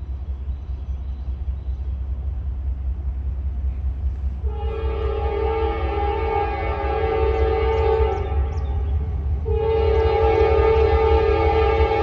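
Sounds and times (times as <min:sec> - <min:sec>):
train rumbling: 0:00.0 - 0:12.0
locomotive air horn chord: 0:04.4 - 0:12.0.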